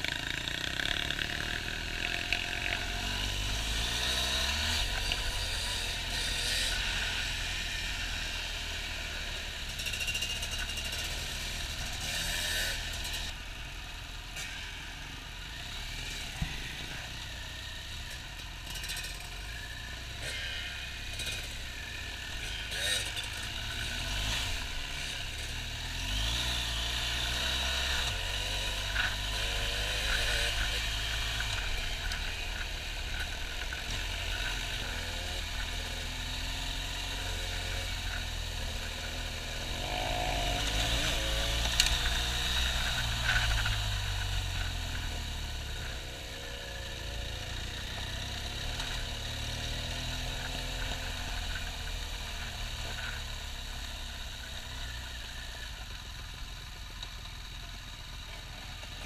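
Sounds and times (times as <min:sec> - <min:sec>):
wind and road noise: 0:00.0 - 0:57.1
motorcycle engine revving: 0:00.0 - 0:59.0.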